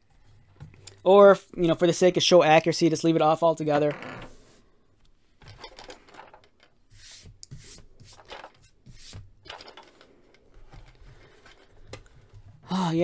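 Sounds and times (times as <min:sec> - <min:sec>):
hands rubbing hollow plastic: 0:06.0 - 0:12.6.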